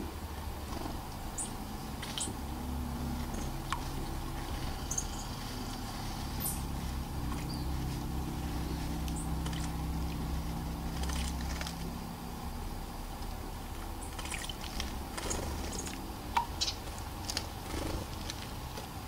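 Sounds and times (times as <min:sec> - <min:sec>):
low mechanical hum: 0:00.0 - 0:19.0
bird splashing in water: 0:10.8 - 0:11.8, 0:14.1 - 0:16.6.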